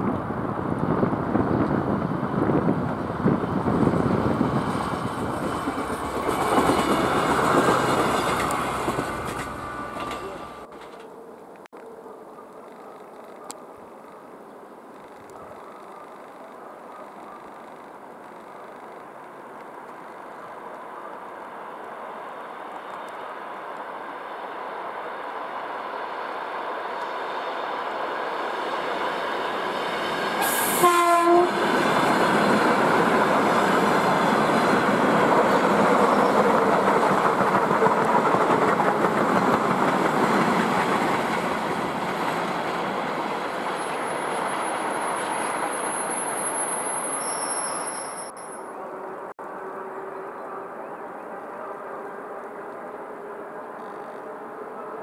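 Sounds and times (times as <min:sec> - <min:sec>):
train wheels on rails: 0:00.0 - 0:11.1, 0:17.0 - 0:48.6
train horn blast: 0:30.4 - 0:31.8.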